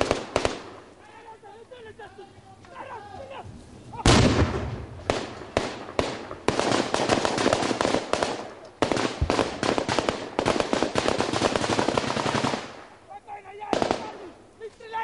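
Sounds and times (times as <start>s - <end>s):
single gunshots: 4.0s - 12.8s, 13.7s - 14.2s
automatic rifle fire: 4.1s - 12.8s, 13.7s - 14.2s.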